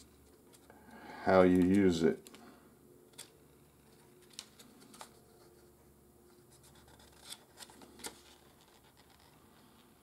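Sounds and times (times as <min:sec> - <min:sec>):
paper pages turning: 0:06.3 - 0:09.4.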